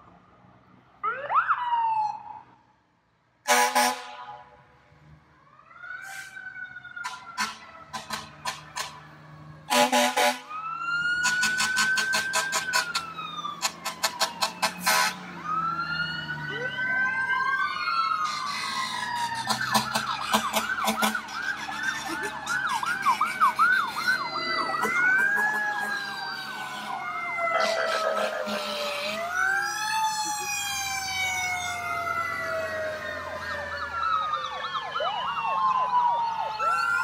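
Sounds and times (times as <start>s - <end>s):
fire truck sirens wailing: 0.0s - 37.0s
buzzing horn blasts: 3.5s - 4.6s, 7.0s - 9.0s, 9.7s - 10.5s, 13.6s - 15.3s, 27.6s - 29.4s.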